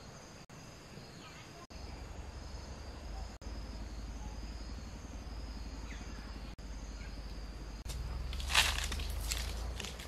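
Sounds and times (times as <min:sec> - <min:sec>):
insects droning: 0:00.0 - 0:10.0
low steady rumble: 0:01.7 - 0:10.0.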